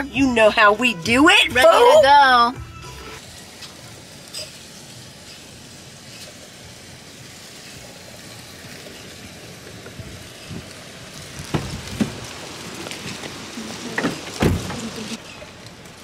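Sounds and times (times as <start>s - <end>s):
steady hiss in car cabin: 3.1s - 16.0s.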